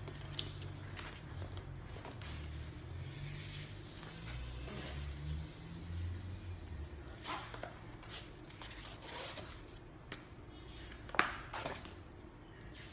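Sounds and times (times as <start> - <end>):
thick pages turning: 0.0 - 4.9.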